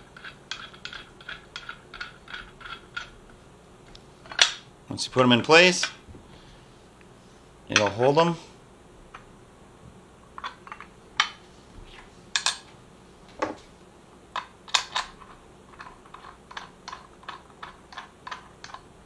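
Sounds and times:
metal parts clicking and tapping: 0:00.0 - 0:03.2, 0:04.2 - 0:04.6, 0:10.4 - 0:11.4, 0:12.4 - 0:12.7, 0:14.3 - 0:18.9.

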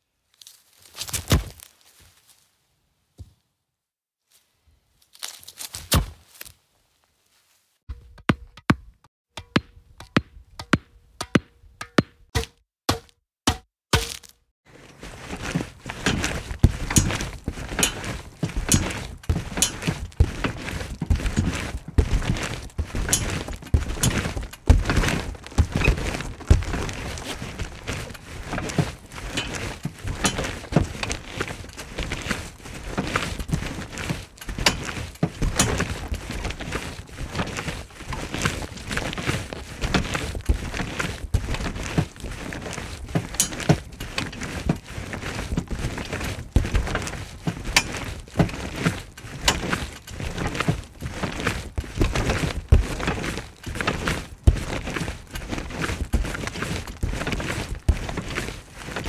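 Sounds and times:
trampoline mat thumps: 0:23.8 - 0:26.9.

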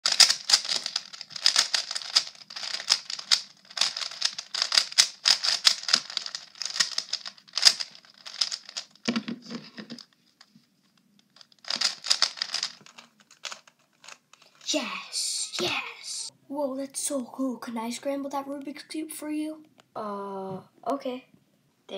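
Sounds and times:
puzzle cube clicking as turned: 0:00.1 - 0:09.2, 0:11.2 - 0:14.2.

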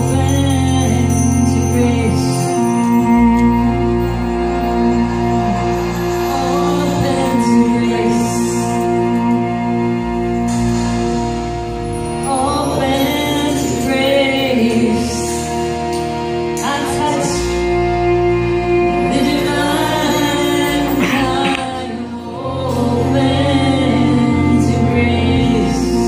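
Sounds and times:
instrumental drone: 0:00.0 - 0:26.0
women singing a chant: 0:19.1 - 0:26.0.

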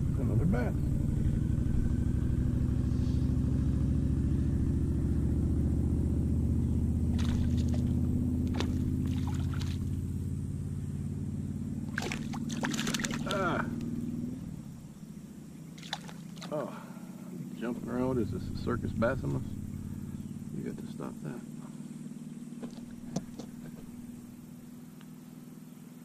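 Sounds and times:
low motor hum: 0:00.0 - 0:26.0
fish splashing in water: 0:07.1 - 0:10.0, 0:11.8 - 0:13.5, 0:15.7 - 0:16.6.

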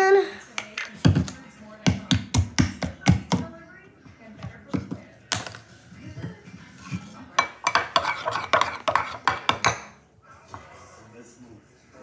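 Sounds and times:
spoon knocking against bowl: 0:07.4 - 0:10.0.

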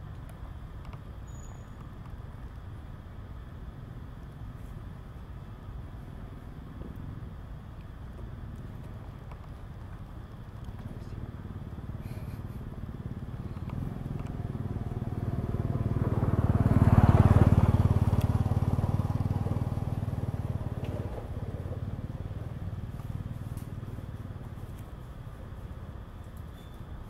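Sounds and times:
vehicle engine passing by: 0:10.9 - 0:24.8.

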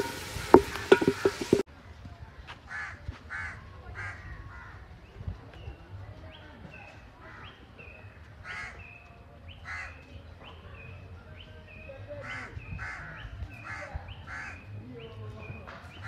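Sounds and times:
birds chirping: 0:00.0 - 0:01.7, 0:02.7 - 0:16.0
harsh rasping bird calls: 0:07.2 - 0:10.6, 0:11.7 - 0:16.0.

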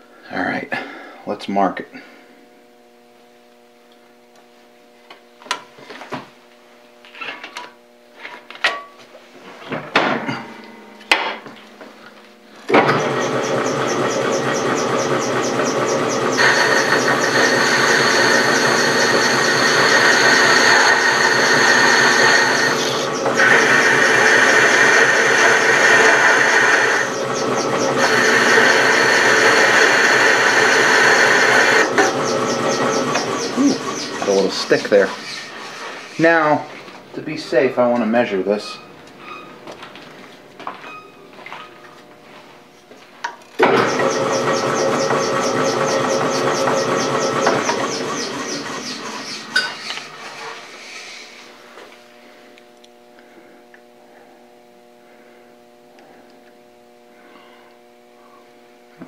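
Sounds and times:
lathe tool cutting metal: 0:12.8 - 0:36.3, 0:43.6 - 0:51.3.

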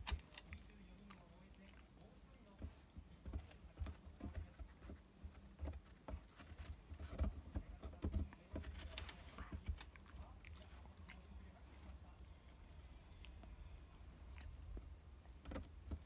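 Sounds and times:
dog teeth crunching wood: 0:00.0 - 0:01.7.

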